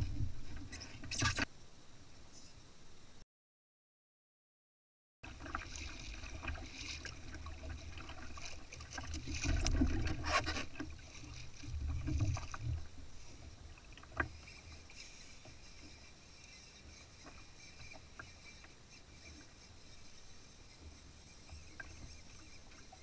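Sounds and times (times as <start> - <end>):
water sloshing against kayak hull: 5.2 - 23.0.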